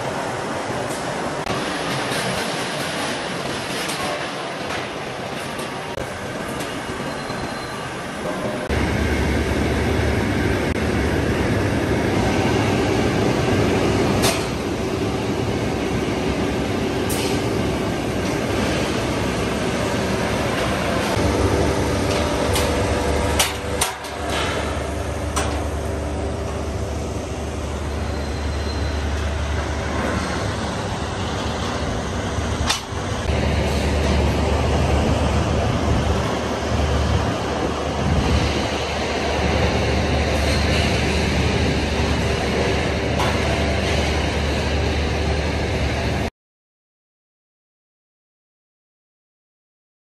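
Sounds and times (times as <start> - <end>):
rolling mill machinery hum: 0.0 - 46.3
metallic clanks of steel rebar: 22.1 - 25.6.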